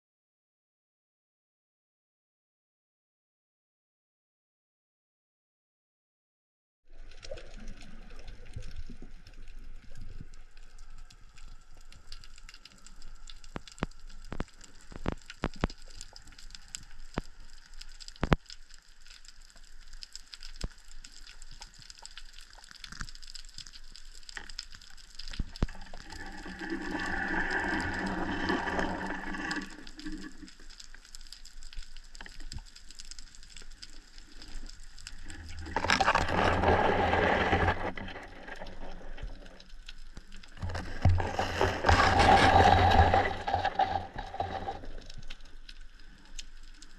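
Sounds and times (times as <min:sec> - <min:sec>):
underwater clicks and crackles: 0:06.9 - 0:46.9
rushing water and movement noise: 0:24.3 - 0:31.0, 0:32.0 - 0:46.9.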